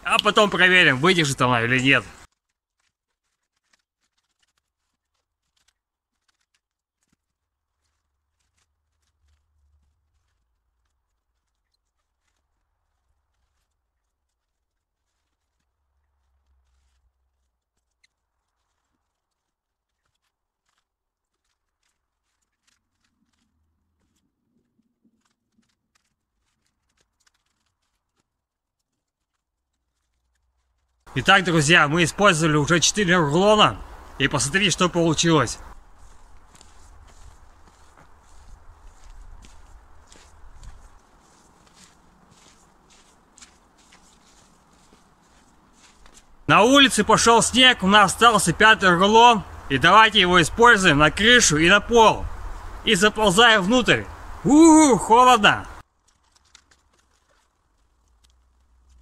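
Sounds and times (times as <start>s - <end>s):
plastic stretch film crackling: 2.2s - 31.1s, 55.8s - 59.0s.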